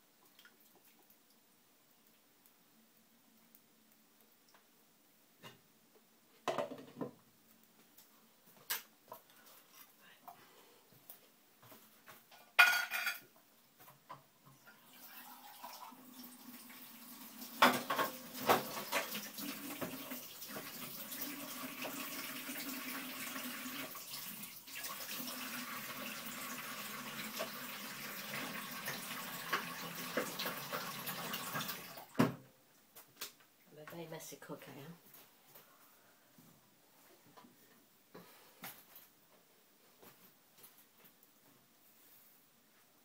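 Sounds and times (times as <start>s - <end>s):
pots and cutlery clattering: 12.3s - 13.2s
tap running into sink: 28.3s - 32.4s.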